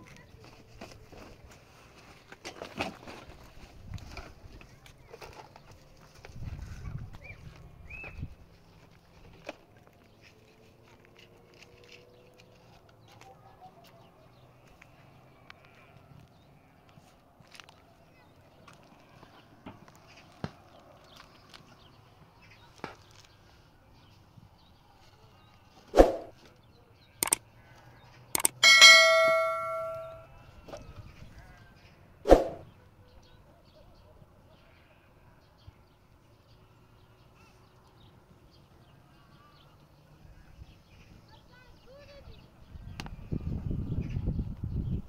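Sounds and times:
small clicks: 28.4s - 28.6s
metal object ringing: 28.4s - 30.3s.

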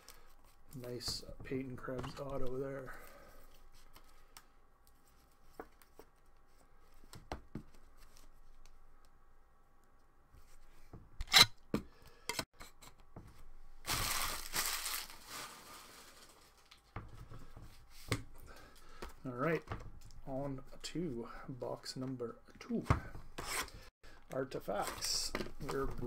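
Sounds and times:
plastic crinkling and rustling: 13.8s - 17.0s.

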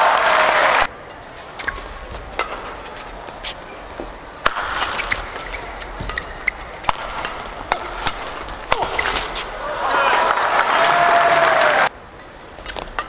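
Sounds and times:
shoes squeaking on court: 1.0s - 9.8s
racket hitting shuttlecock: 1.5s - 10.6s, 12.6s - 13.0s
crowd murmur: 5.3s - 11.9s.

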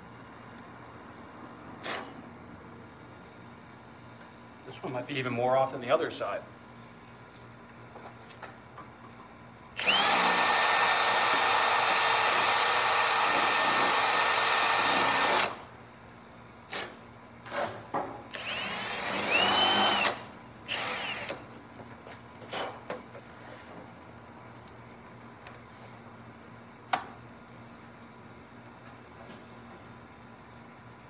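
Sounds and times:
power drill boring into plastic: 9.8s - 15.6s, 18.3s - 21.4s.

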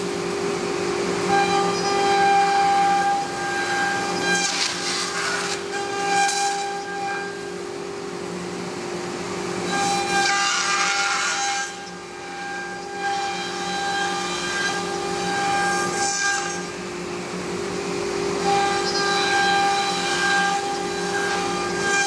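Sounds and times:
router spindle whining: 0.0s - 21.9s
router bit cutting wood: 1.2s - 7.5s, 9.6s - 16.8s, 18.4s - 22.0s.

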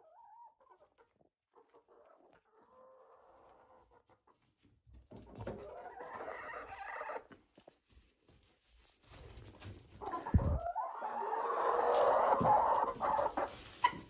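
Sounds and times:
hens clucking softly: 0.0s - 4.7s, 5.4s - 7.4s, 10.0s - 14.0s
hens pecking: 0.1s - 14.0s.

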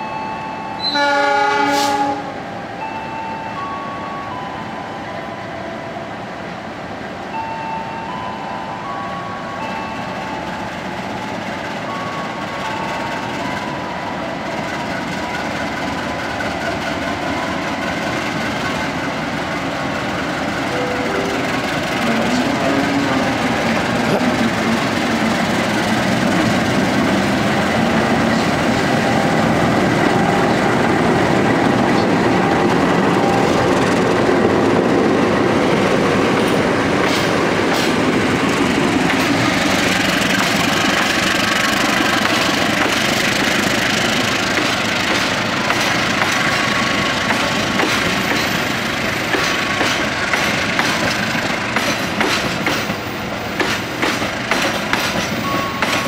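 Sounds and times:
diesel locomotives running: 0.0s - 56.0s
train wheels clattering over rail joints: 33.6s - 56.0s.

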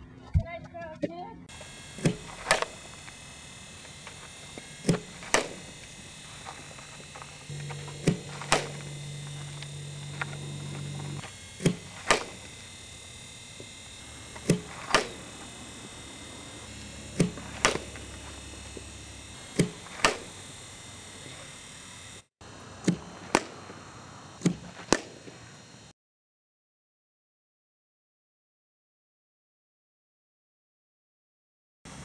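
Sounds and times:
bat hitting balls: 4.8s - 5.7s, 7.5s - 12.6s, 14.3s - 15.4s, 16.8s - 20.4s, 22.8s - 23.8s, 24.4s - 25.4s.

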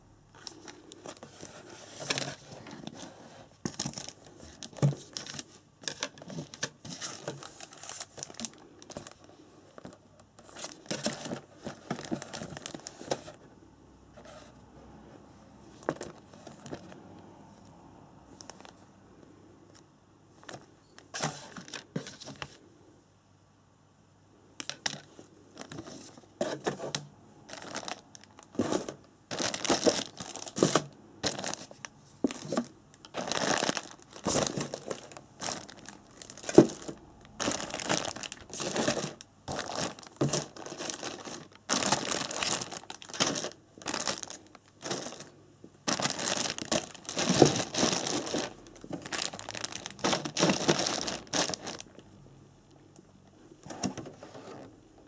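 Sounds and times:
plastic bags crinkling: 0.4s - 13.4s, 24.6s - 52.0s.

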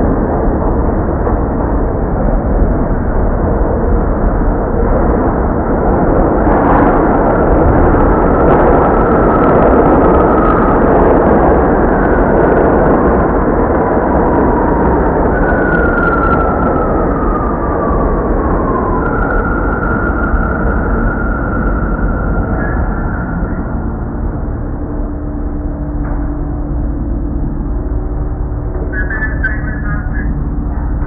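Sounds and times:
subway train rumble and rattle: 0.0s - 31.0s
faint high squeal: 28.8s - 31.0s.

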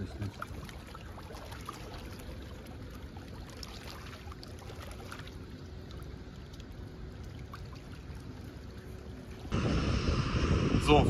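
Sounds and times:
river water washing at bank: 0.0s - 9.6s
water drips and splashes: 0.0s - 9.6s
faint steady hum: 0.0s - 11.0s.

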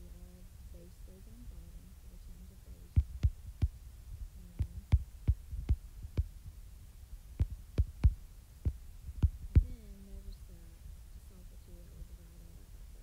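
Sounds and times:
low steady hum: 0.0s - 13.0s
stylus tapping on glass screen: 7.4s - 9.8s.

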